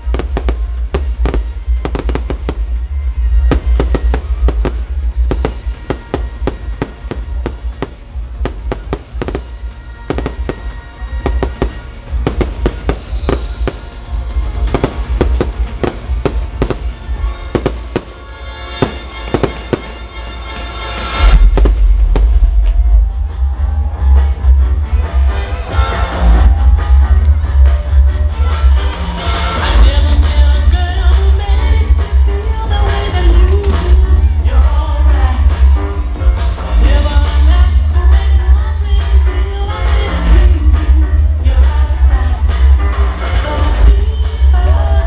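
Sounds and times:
fireworks bangs and crackles: 0:00.0 - 0:24.5
loud music: 0:00.0 - 0:45.0.

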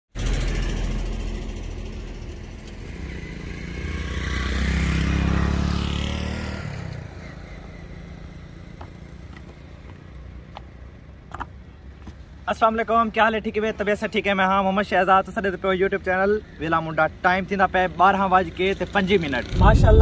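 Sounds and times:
vehicle passing by: 0:00.2 - 0:10.5, 0:18.3 - 0:20.0
footsteps on wooden footbridge: 0:08.8 - 0:12.3.

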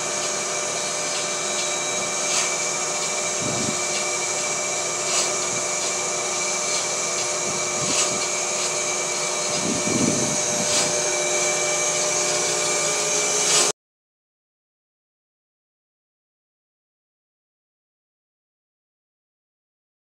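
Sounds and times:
bandsaw motor whirring: 0:00.0 - 0:13.7.

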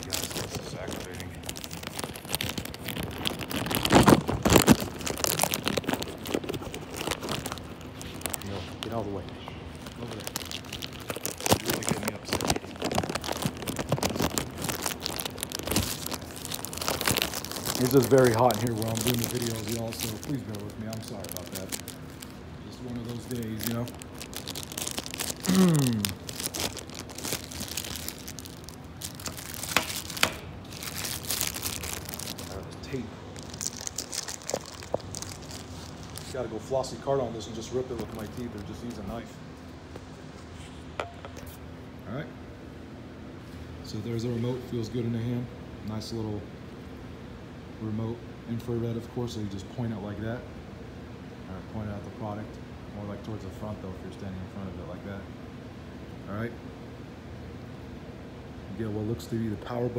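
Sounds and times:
plastic and paper rustling: 0:00.0 - 0:39.3
plastic wrapping crinkling: 0:00.0 - 0:39.3
man groaning: 0:25.4 - 0:26.2.

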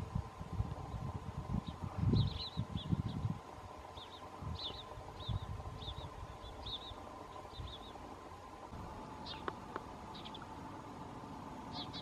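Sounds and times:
bird chirping: 0:01.6 - 0:03.3, 0:03.9 - 0:08.1, 0:09.1 - 0:10.6, 0:11.6 - 0:12.0.

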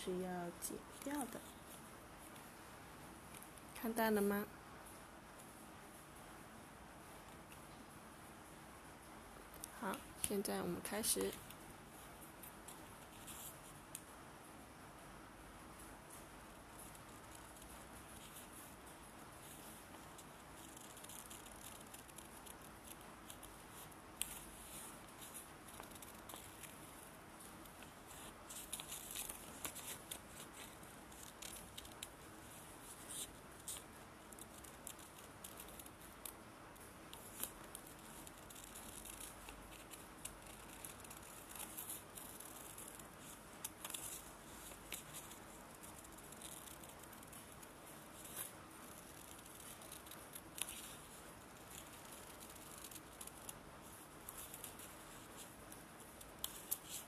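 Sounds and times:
paper rustling: 0:19.4 - 0:36.2
scissors snipping paper: 0:20.6 - 0:32.2, 0:33.0 - 0:36.4, 0:37.0 - 0:53.6, 0:54.2 - 0:57.0.

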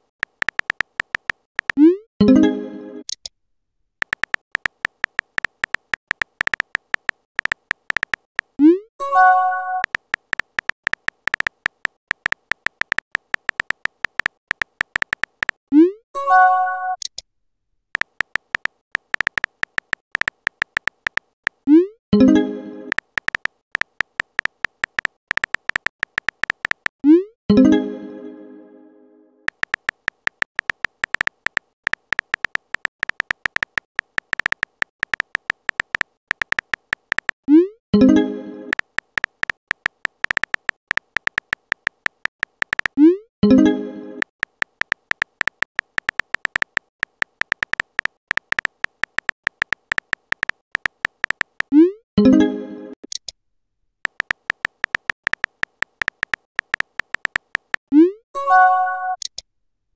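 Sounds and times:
keyboard tap clicks: 0:00.2 - 0:01.8, 0:04.0 - 0:08.5, 0:09.8 - 0:15.6, 0:18.0 - 0:21.6, 0:22.9 - 0:26.9, 0:29.5 - 0:37.4, 0:38.7 - 0:43.0, 0:44.2 - 0:51.7, 0:54.1 - 0:57.8.

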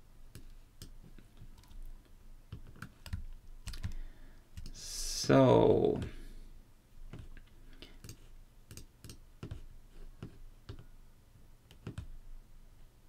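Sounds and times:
computer mouse and key clicks: 0:00.3 - 0:04.0, 0:04.6 - 0:04.8, 0:07.1 - 0:10.9, 0:11.6 - 0:12.2.

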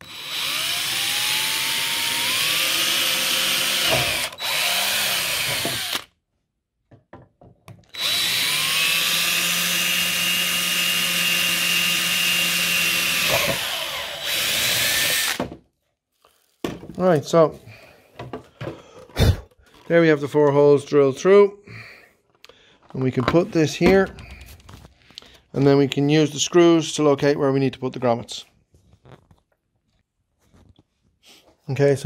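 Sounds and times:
power drill whining: 0:00.0 - 0:06.1, 0:07.8 - 0:15.6.

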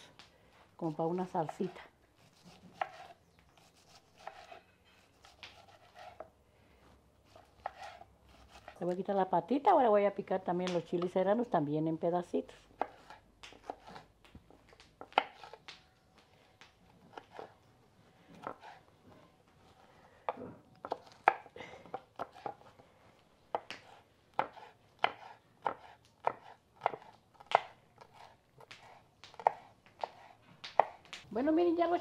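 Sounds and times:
knife chopping on wooden board: 0:01.4 - 0:06.3, 0:07.3 - 0:08.8, 0:12.8 - 0:14.0, 0:20.3 - 0:22.7, 0:23.5 - 0:31.1.

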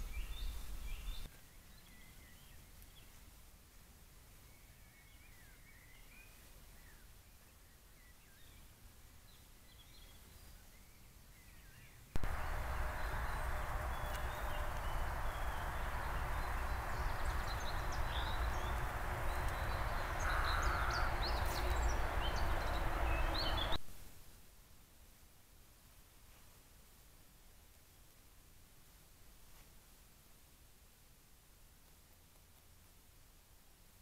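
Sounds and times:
high bird chirps: 0:12.2 - 0:23.8
rushing background noise: 0:12.2 - 0:23.8.

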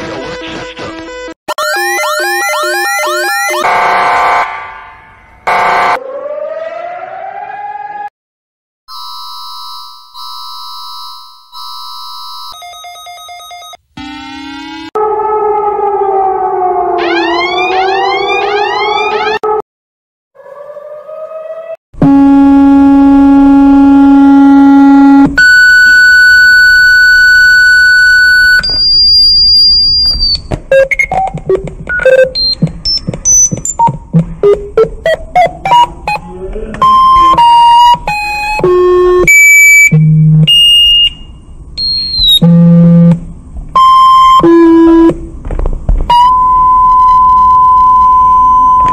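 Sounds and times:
synthesized alarm tones: 0:01.5 - 0:04.5, 0:08.9 - 0:15.1, 0:17.0 - 0:19.6, 0:22.0 - 0:41.2, 0:41.8 - 0:43.2
short beeps climbing in pitch: 0:24.0 - 0:36.2, 0:36.8 - 0:43.2, 0:43.8 - 0:45.1.

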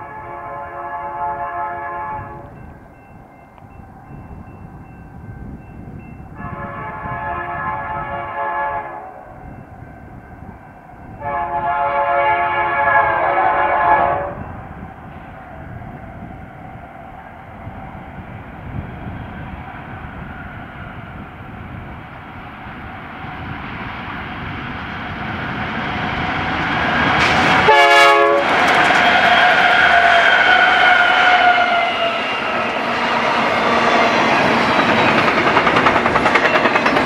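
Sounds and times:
train horn blast: 0:00.0 - 0:02.6, 0:06.4 - 0:09.4, 0:11.2 - 0:14.5, 0:27.6 - 0:32.8
locomotive whine: 0:00.0 - 0:37.0
locomotive rumble: 0:11.1 - 0:37.0
freight cars rolling by: 0:24.0 - 0:37.0.

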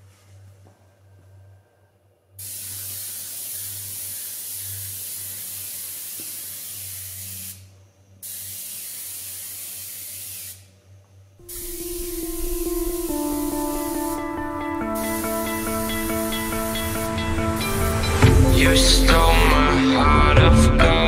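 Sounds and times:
airbrush spraying hiss: 0:02.4 - 0:10.8, 0:11.4 - 0:19.4
low steady hum: 0:10.9 - 0:19.7.

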